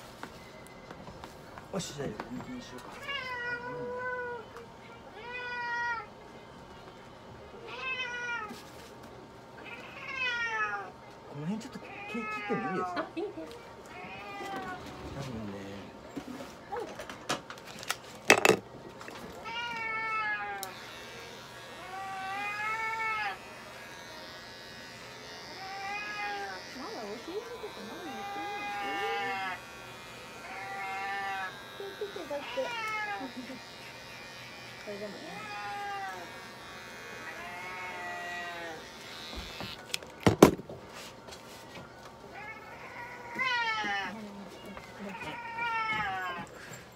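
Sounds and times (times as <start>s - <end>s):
electric pet clippers buzzing: 20.4s - 40.1s.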